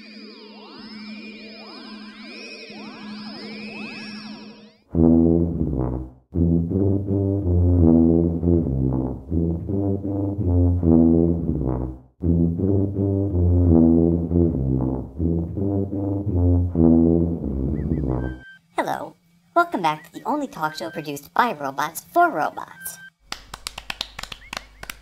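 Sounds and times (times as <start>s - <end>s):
brass band music: 5.0s - 18.4s.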